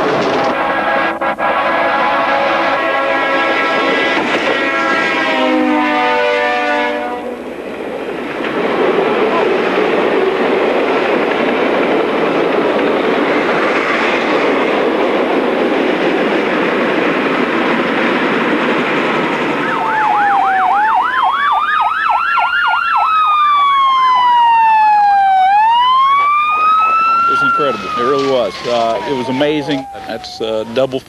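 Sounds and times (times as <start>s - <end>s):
police siren wail: 0.0s - 7.4s, 19.4s - 31.0s
train rumbling past: 0.0s - 21.8s, 23.4s - 31.0s
police siren yelp: 19.5s - 31.0s.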